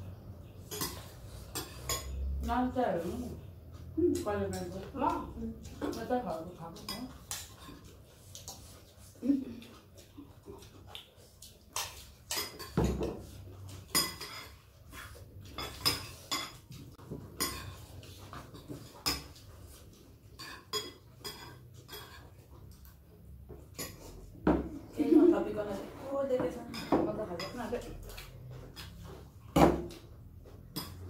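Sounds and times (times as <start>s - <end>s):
spoons clinking on ceramic bowls: 0.6s - 2.3s, 4.2s - 7.9s, 11.8s - 19.4s, 20.3s - 22.4s, 26.4s - 29.1s, 30.6s - 31.0s.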